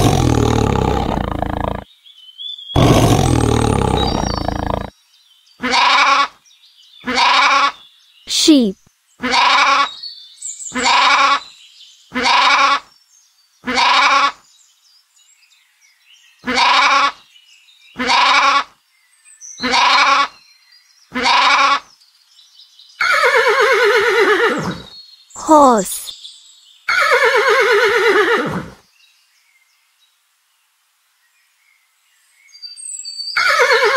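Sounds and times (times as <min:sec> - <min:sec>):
horse whinnying: 0:23.0 - 0:24.9, 0:26.9 - 0:28.8, 0:33.4 - 0:33.9.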